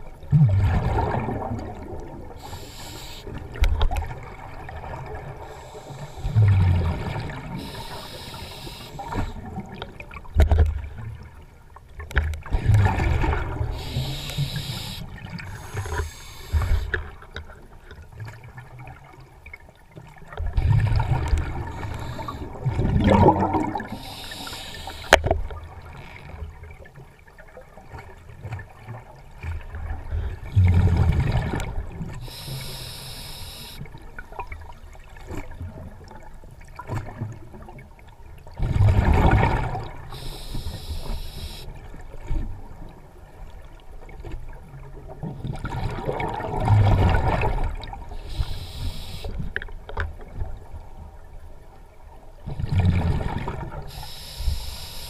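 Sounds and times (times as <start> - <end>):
exhaled bubbles burbling: 0.2 - 10.1, 12.5 - 17.2, 20.4 - 25.7, 38.6 - 41.6
regulator hissing inhale: 2.4 - 3.4, 5.4 - 6.6, 7.6 - 9.4, 13.7 - 17.0, 21.6 - 22.6, 23.8 - 25.2, 32.2 - 33.8, 40.1 - 41.7, 48.2 - 49.4, 53.9 - 55.0.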